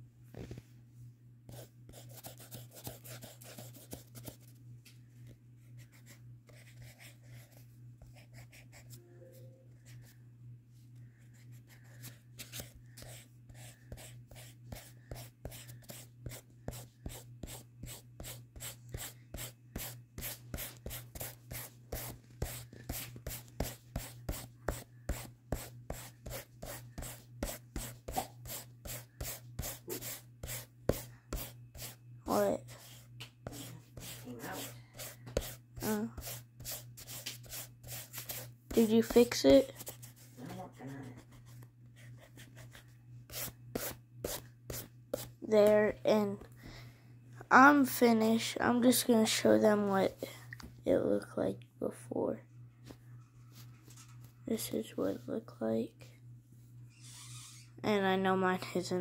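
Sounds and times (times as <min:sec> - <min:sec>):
eraser scrubbing on paper: 0:12.0 - 0:41.3.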